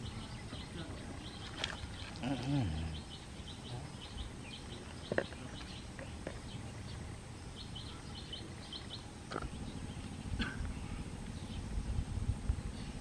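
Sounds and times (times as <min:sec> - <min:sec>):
bird chirping: 0:00.0 - 0:12.0
low outdoor rumble: 0:00.0 - 0:13.0.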